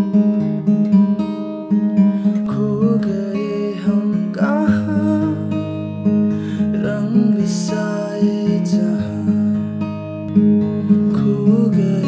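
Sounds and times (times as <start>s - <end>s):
acoustic guitar strumming: 0.0s - 12.0s
man singing slow song: 2.4s - 5.6s, 6.5s - 9.8s, 10.8s - 12.0s.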